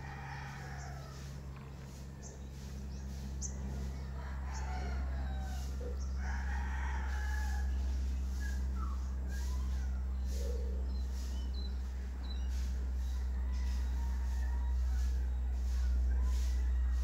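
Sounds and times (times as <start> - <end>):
rooster crowing: 0.0 - 1.6, 3.6 - 10.7, 12.8 - 17.0
steady low hum: 0.0 - 17.0.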